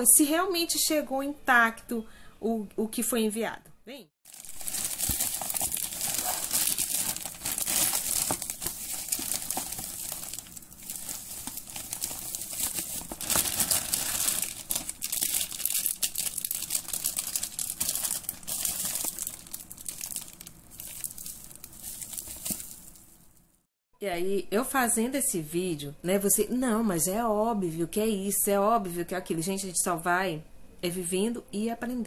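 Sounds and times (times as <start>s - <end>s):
plastic packaging crinkling: 4.3s - 23.6s.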